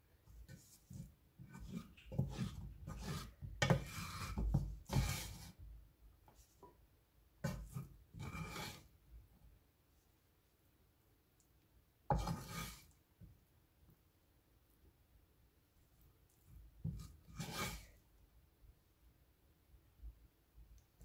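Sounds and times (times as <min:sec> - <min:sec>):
utensil scraping rice in a bowl: 0:00.4 - 0:05.6, 0:07.4 - 0:08.9, 0:12.1 - 0:13.0, 0:16.8 - 0:18.0.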